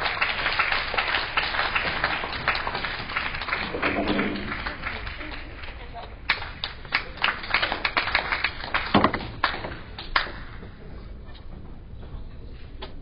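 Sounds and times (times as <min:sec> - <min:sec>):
hall background noise: 0:01.5 - 0:07.5.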